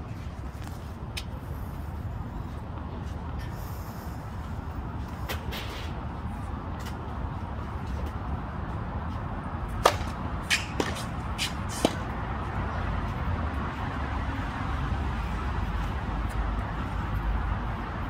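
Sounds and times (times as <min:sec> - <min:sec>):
tennis racket hitting ball: 0:09.8 - 0:12.1.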